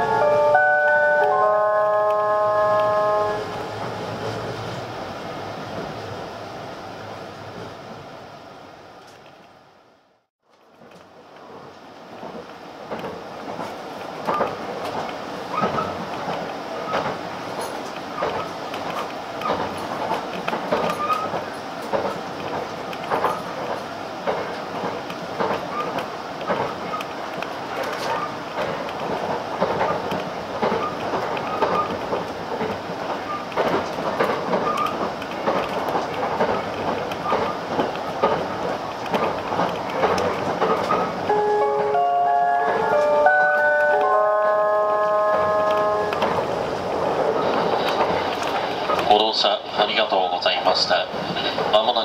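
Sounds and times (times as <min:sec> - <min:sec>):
train rumble inside passenger car: 0:00.0 - 0:52.0
wheels clacking over rail joints: 0:10.5 - 0:52.0.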